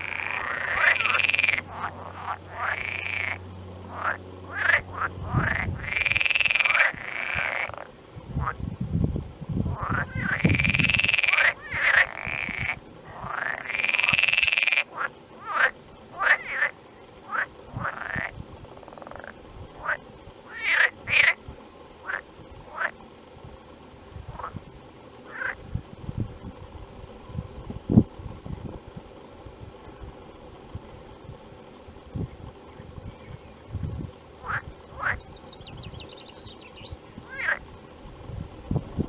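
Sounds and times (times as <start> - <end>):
frogs calling in chorus: 0.0 - 8.6, 9.7 - 21.4, 22.0 - 23.0, 25.2 - 25.6, 34.4 - 35.7, 36.4 - 37.6.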